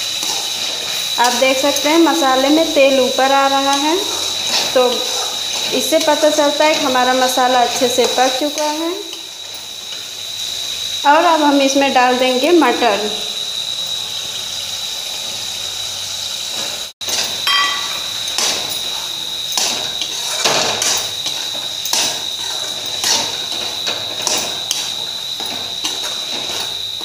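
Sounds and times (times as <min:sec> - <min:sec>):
sizzling hiss: 0:00.0 - 0:27.0
metal spatula knocking on pan: 0:17.4 - 0:18.0.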